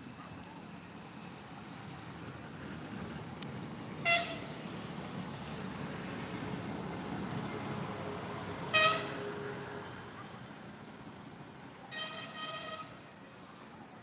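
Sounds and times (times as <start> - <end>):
vehicle horn toots: 4.0 - 4.4, 8.7 - 9.2.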